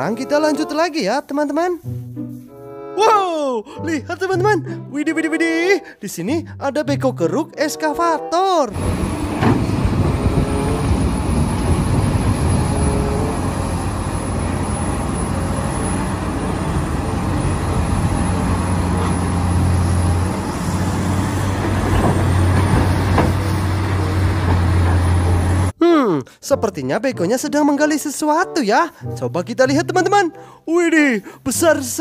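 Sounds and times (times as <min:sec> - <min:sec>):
excavator diesel engine drone: 0:08.8 - 0:25.7.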